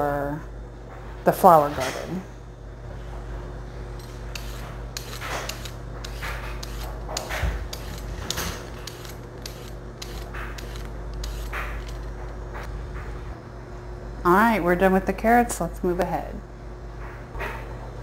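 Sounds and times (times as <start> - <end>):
peeler scraping a carrot: 4.0 - 12.3.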